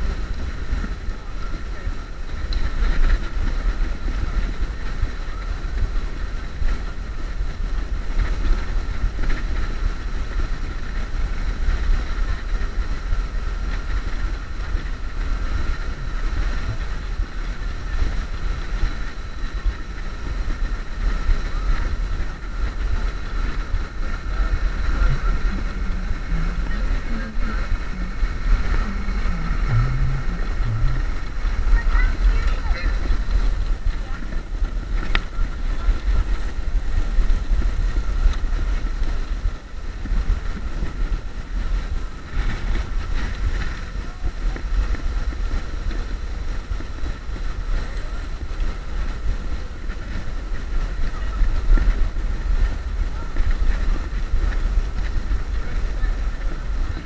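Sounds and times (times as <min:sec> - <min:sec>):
faint high whine: 0:00.0 - 0:45.4
road noise rumble: 0:00.0 - 0:57.0
wind buffeting microphone: 0:00.0 - 0:57.0.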